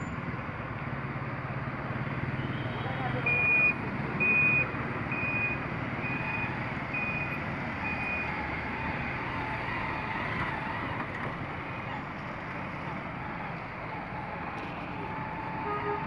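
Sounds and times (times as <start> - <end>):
street traffic: 0.0 - 16.0
vehicle reversing alarm beeping: 3.2 - 8.4.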